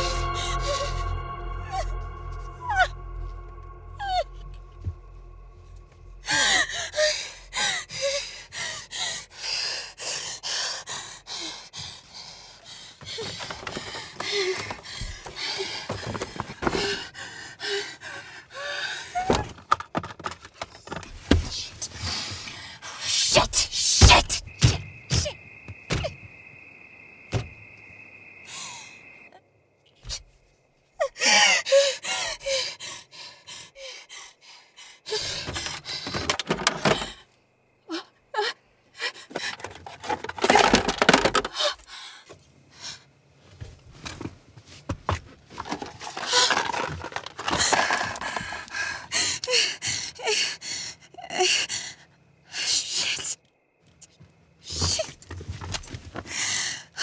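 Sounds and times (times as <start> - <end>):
steady high tone: 0.0 - 7.6
woman gasping and panting: 6.2 - 19.4, 31.0 - 36.3, 47.5 - 53.0, 56.3 - 57.0
thunks and clicks of handling: 19.2 - 21.6, 35.3 - 37.2, 39.3 - 41.6.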